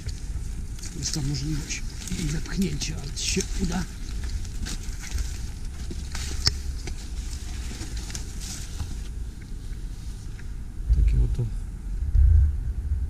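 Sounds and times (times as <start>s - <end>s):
footsteps through snowy undergrowth: 0.0s - 10.3s
twigs crackling and snapping: 0.0s - 10.5s
low rumble: 0.0s - 13.0s.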